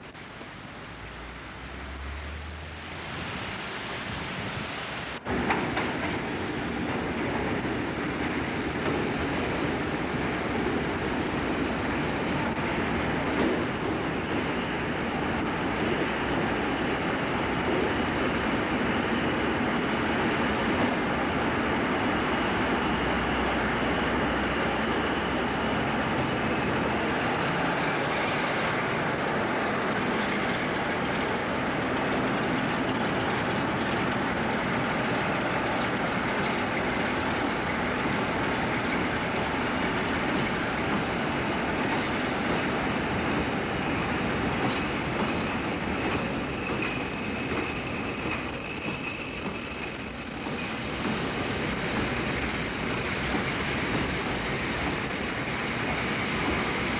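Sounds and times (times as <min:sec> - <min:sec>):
train wheels rumbling on rails: 0:00.0 - 0:56.9
high-pitched wheel squeal: 0:06.5 - 0:15.5, 0:25.6 - 0:38.4, 0:39.6 - 0:42.2, 0:44.4 - 0:56.8.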